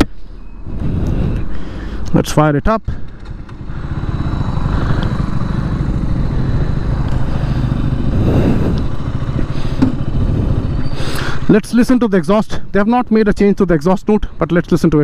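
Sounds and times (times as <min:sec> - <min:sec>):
motorcycle engine starting and idling: 0:02.8 - 0:11.6.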